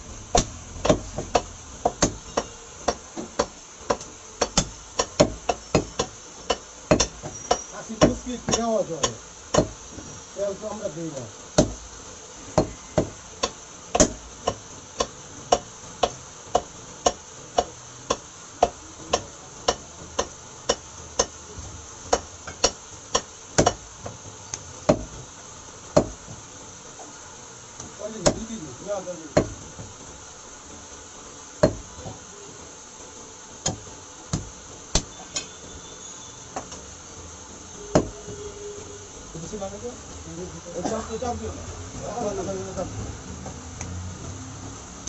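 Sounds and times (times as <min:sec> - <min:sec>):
cleaver chopping meat on wood: 0:00.3 - 0:09.8, 0:11.6 - 0:11.8, 0:12.6 - 0:21.4, 0:22.1 - 0:23.8, 0:24.8 - 0:25.2, 0:26.0 - 0:26.2, 0:28.2 - 0:28.5, 0:29.3 - 0:29.6, 0:31.6 - 0:31.9, 0:33.6 - 0:35.1, 0:37.9 - 0:38.2.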